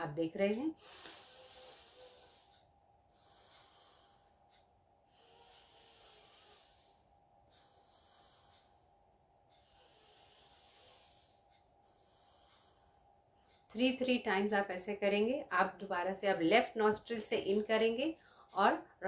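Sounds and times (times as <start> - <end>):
slow nostril breathing: 0.8 - 13.7, 18.2 - 18.6.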